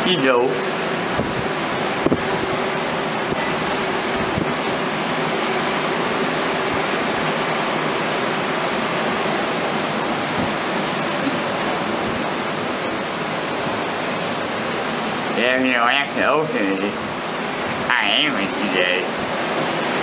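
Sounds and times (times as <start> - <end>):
heavy surf breaking: 0.2 - 20.0.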